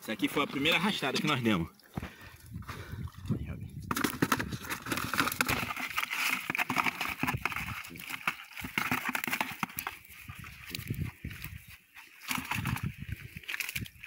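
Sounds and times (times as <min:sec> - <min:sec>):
catfish in net clicking and rustling: 0:03.9 - 0:14.0.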